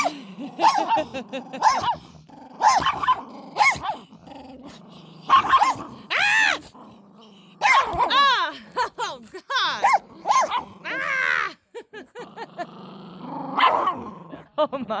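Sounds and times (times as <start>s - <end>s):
puppy barking: 0.0s - 2.0s, 2.6s - 4.0s, 5.3s - 5.9s, 7.6s - 8.2s, 9.8s - 10.8s, 13.6s - 14.0s
puppy growling: 0.0s - 9.0s, 9.8s - 11.5s, 12.1s - 14.6s.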